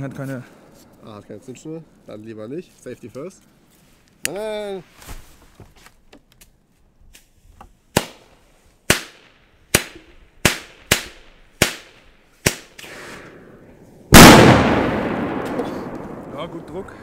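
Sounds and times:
firecrackers banging: 8.9 - 17.0.

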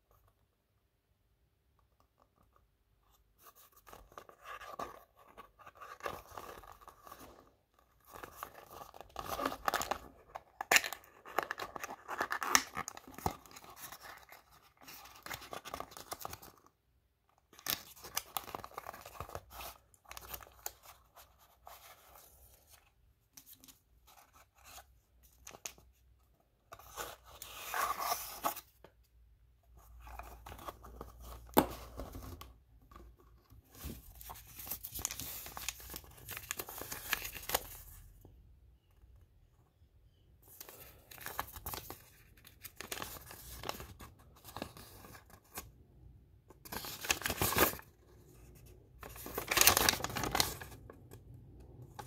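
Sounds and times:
cardboard and foil crinkling: 49.0 - 50.7.

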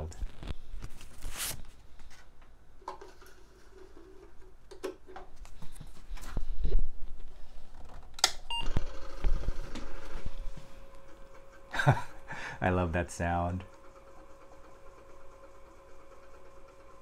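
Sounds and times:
floppy drive running: 8.6 - 17.0.

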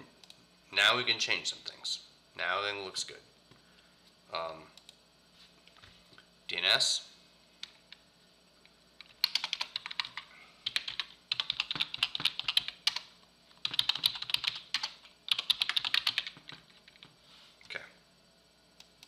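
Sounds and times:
typing on computer keyboard: 9.0 - 17.1.

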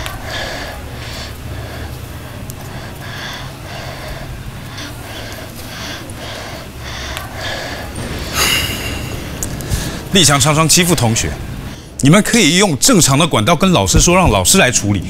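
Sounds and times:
person breathing heavily: 0.0 - 10.1
steady low hum: 0.0 - 12.0.

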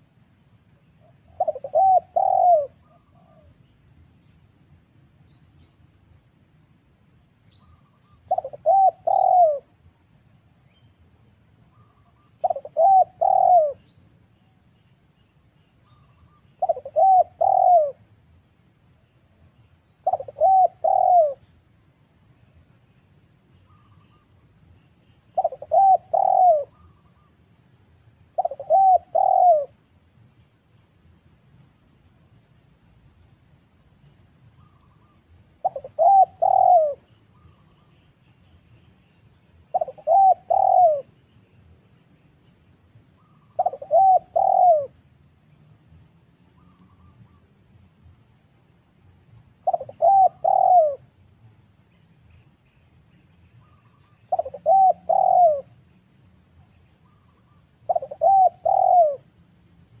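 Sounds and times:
dove cooing: 1.0 - 3.6, 8.3 - 9.7, 11.8 - 13.8, 15.9 - 18.0, 20.0 - 21.5, 25.4 - 27.3, 28.4 - 29.8, 34.6 - 37.9, 39.7 - 41.3, 43.2 - 45.0, 49.6 - 51.1, 53.6 - 55.8, 57.0 - 59.4.

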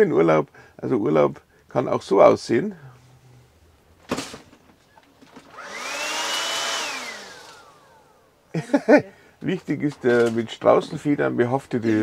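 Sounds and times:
handheld vacuum motor whine: 5.4 - 8.2.

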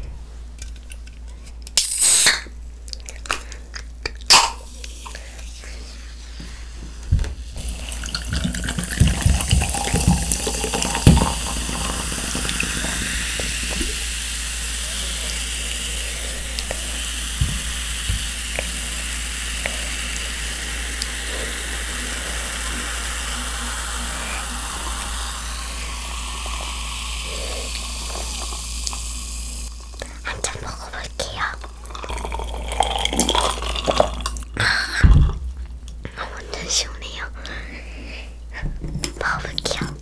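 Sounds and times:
soda fizzing: 1.8 - 2.5, 7.3 - 35.4
soda pouring over ice: 7.6 - 30.1, 30.9 - 34.6.

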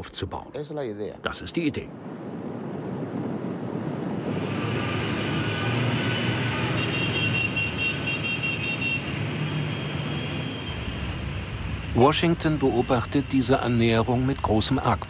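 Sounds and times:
passing vehicle engine: 1.9 - 7.7.

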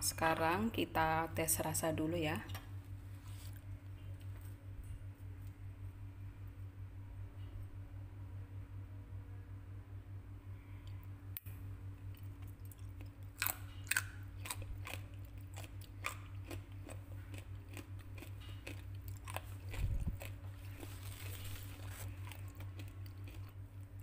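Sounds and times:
person chewing crunchy food: 12.1 - 24.0.

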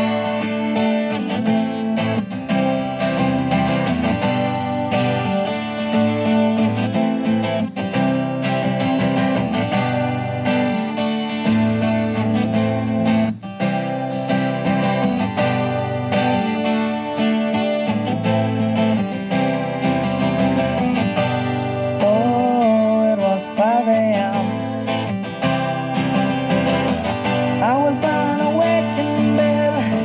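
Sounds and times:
acoustic guitar strumming: 0.0 - 30.0
wordless singing: 27.6 - 30.0.

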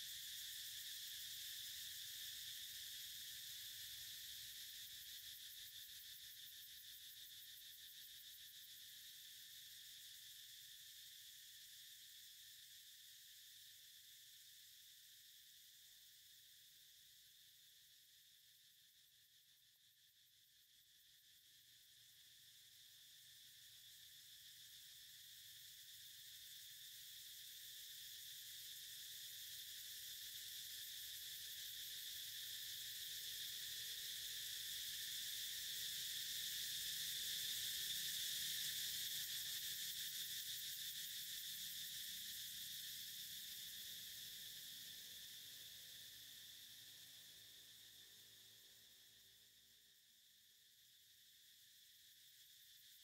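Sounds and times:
insect chorus chirring: 0.0 - 16.8, 18.4 - 53.0.

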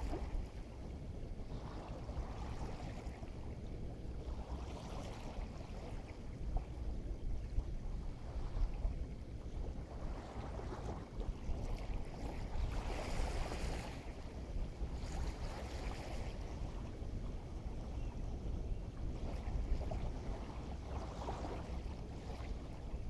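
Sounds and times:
surf washing in: 0.0 - 0.8
wind buffeting microphone: 0.0 - 23.0.

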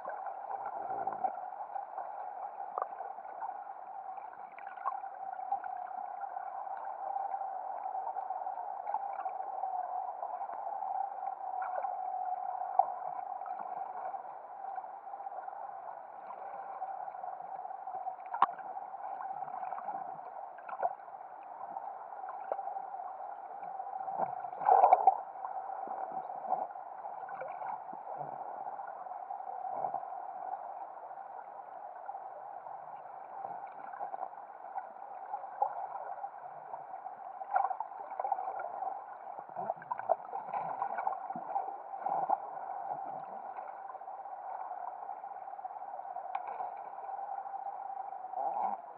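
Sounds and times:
underwater steady hum: 0.0 - 48.9.

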